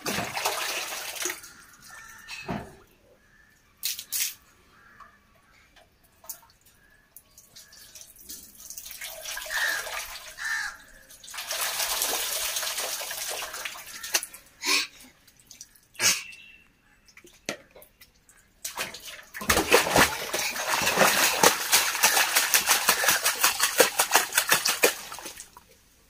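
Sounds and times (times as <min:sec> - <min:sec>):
water pouring and splashing: 0:00.0 - 0:02.2, 0:06.2 - 0:16.2, 0:18.6 - 0:25.8.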